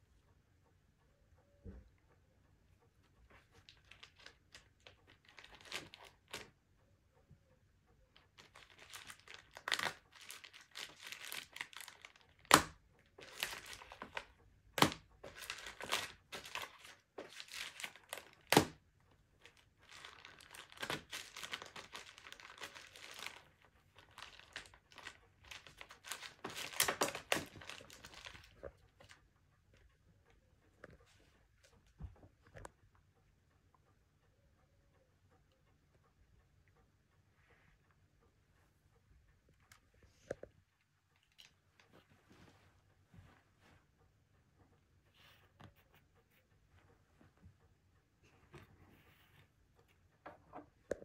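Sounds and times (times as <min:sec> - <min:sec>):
paper and wrapper crinkling: 0:03.3 - 0:06.6, 0:08.1 - 0:18.8, 0:19.4 - 0:29.2.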